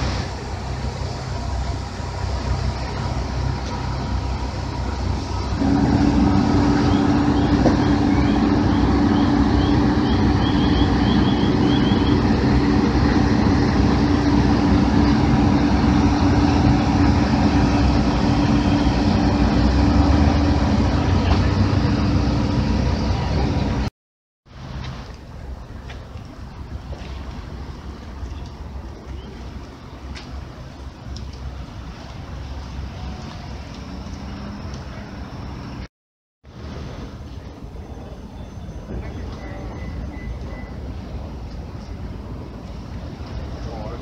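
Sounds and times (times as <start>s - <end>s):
heavy vehicle engine humming: 0.0s - 23.9s, 24.5s - 35.9s, 36.5s - 44.0s
low rumbling noise: 0.0s - 23.9s, 24.5s - 35.9s, 36.5s - 44.0s.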